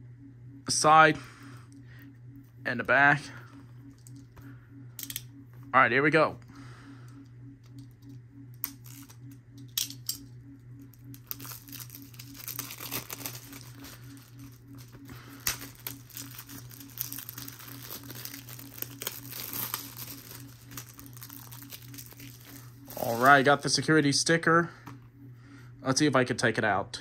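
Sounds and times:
shrink wrap crinkling and tearing: 0:08.6 - 0:10.1, 0:10.9 - 0:23.7.

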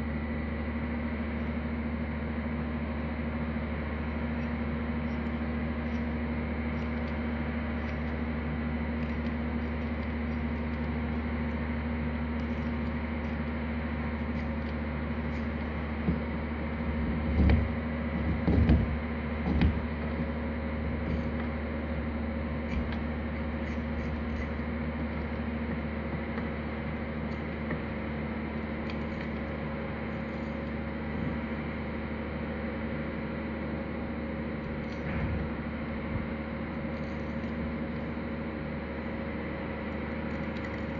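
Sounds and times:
steady low hum: 0:00.0 - 0:40.9
dull thumps: 0:17.2 - 0:19.9.

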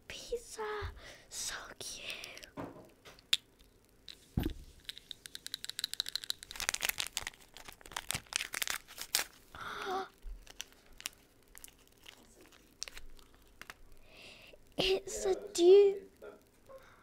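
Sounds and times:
plastic wrapper tearing and crinkling: 0:03.2 - 0:14.0.

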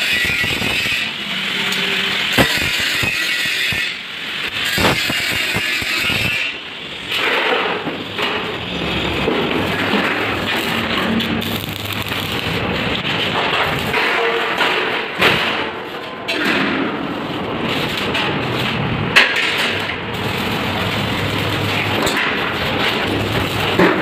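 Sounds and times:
welding arc crackling: 0:00.0 - 0:16.1, 0:17.0 - 0:24.0.

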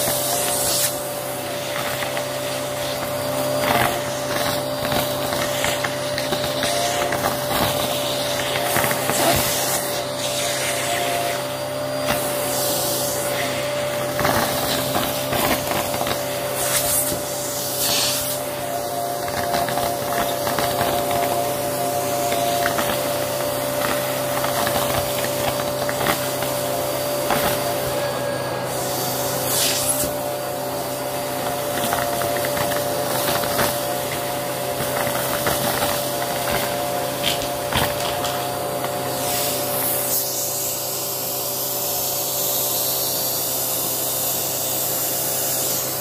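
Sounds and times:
debris rattling up vacuum tool: 0:00.0 - 0:46.0
vacuum cleaner running: 0:00.0 - 0:46.0.

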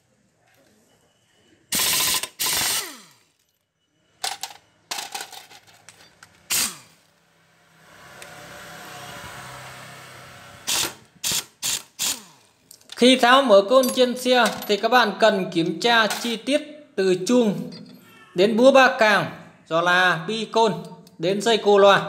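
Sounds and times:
impact wrench bursts: 0:01.7 - 0:03.4, 0:06.4 - 0:07.1, 0:09.2 - 0:12.6.

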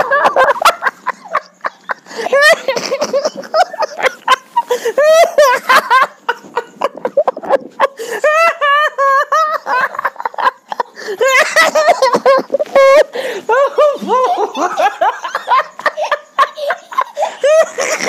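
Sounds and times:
high-pitched laughter: 0:00.0 - 0:18.0.

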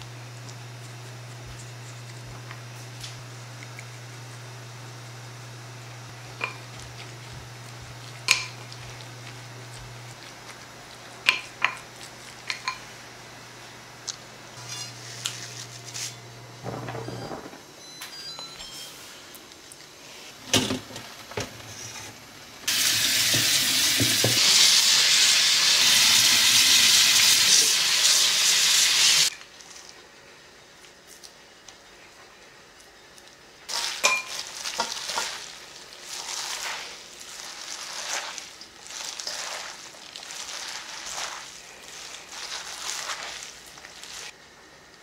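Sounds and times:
water running: 0:22.6 - 0:29.3, 0:33.7 - 0:44.3
wet scraping and squishing: 0:33.7 - 0:44.4.

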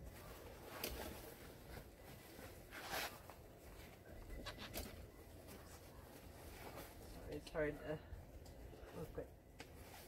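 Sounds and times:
fabric swish: 0:00.0 - 0:04.7.

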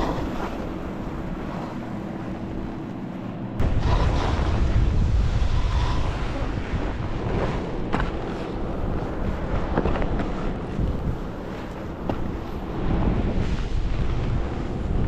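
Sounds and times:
wind buffeting microphone: 0:00.0 - 0:15.0
skis hissing through powder snow: 0:03.6 - 0:15.0.

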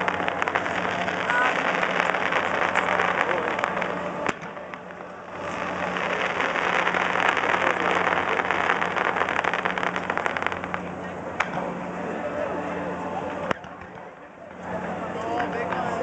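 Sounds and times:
sharp firework crack: 0:00.0 - 0:11.7
fireworks crackling: 0:00.0 - 0:11.9.

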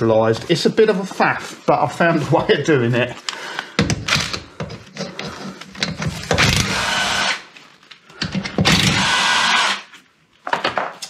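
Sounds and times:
cordless power driver running: 0:06.3 - 0:07.4, 0:08.7 - 0:09.9.

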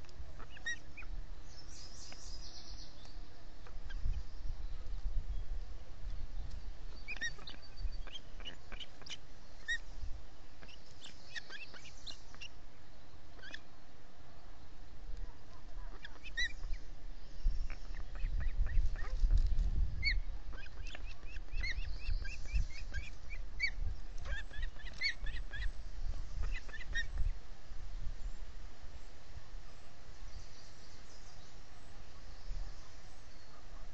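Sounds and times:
ospreys chirping: 0:00.4 - 0:01.1, 0:07.0 - 0:09.9, 0:10.6 - 0:12.6, 0:15.8 - 0:19.2, 0:19.8 - 0:27.3
wind on microphone: 0:03.7 - 0:08.7, 0:15.1 - 0:28.6.

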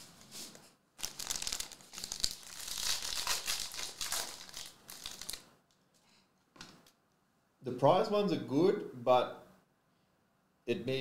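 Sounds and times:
foil wrapper crinkling and tearing: 0:01.0 - 0:05.5.

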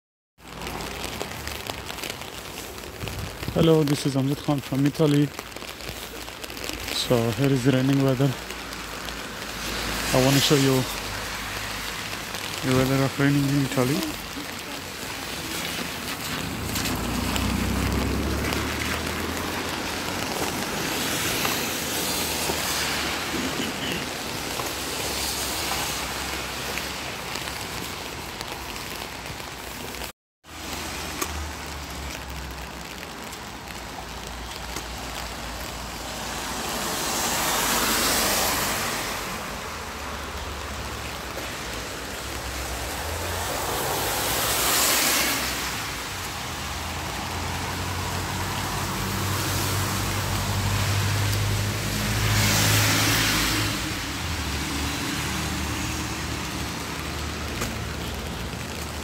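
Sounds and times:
car tyres hissing on wet asphalt: 0:00.4 - 0:59.0
vehicles passing: 0:00.4 - 0:59.0.

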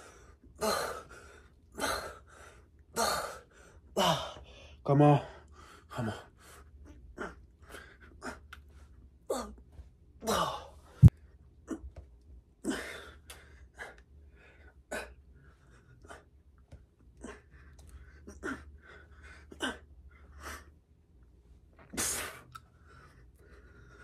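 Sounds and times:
man breathing forcefully: 0:00.0 - 0:08.4.

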